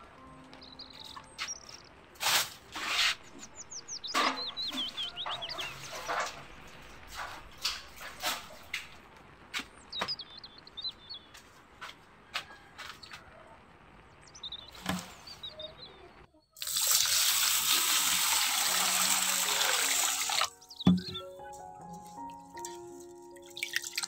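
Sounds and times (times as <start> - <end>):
bird chirping: 0.2 - 2.1, 2.8 - 9.0, 9.7 - 11.4, 14.0 - 16.6, 20.5 - 21.6
water splashing in a bucket: 16.6 - 20.6, 23.4 - 24.0
bucket and rope knocking: 18.8 - 21.4.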